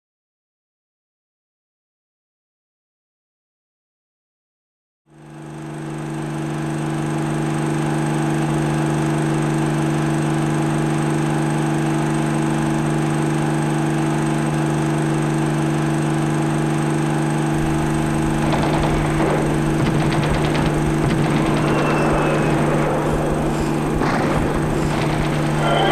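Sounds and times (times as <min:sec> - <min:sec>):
machine hum with hiss: 0:05.1 - 0:25.9
crackling and clicking: 0:17.5 - 0:25.9.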